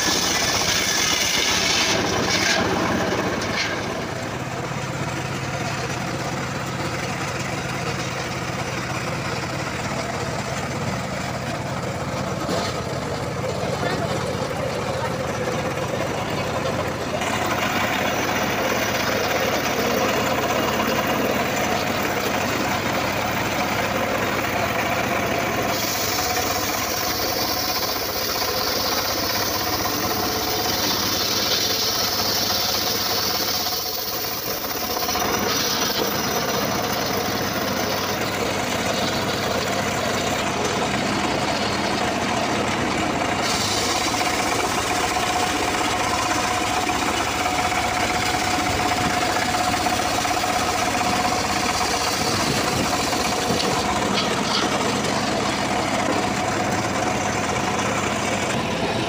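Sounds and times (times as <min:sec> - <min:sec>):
saw blade cutting log: 0:00.0 - 0:04.3, 0:25.2 - 0:41.9, 0:43.4 - 0:57.0
saw engine knocking hum: 0:00.0 - 0:59.0.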